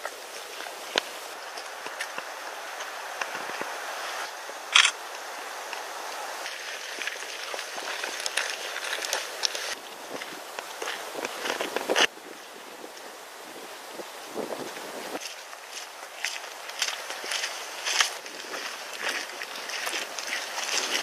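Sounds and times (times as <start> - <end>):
steady hiss: 0.0 - 21.0
small clicks and crackles: 6.5 - 9.8.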